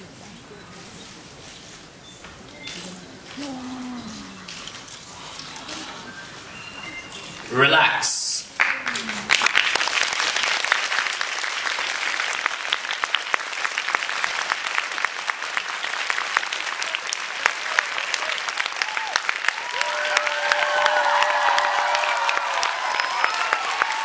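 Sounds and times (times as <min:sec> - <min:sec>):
audience applauding: 0:08.4 - 0:24.0
loud close hand claps: 0:08.6 - 0:24.0.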